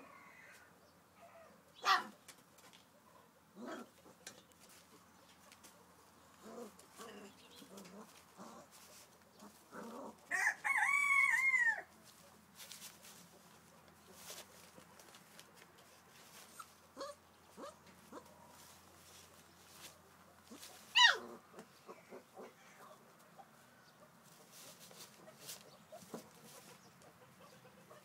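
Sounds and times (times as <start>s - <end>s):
newspaper rustling: 12.0s - 16.8s.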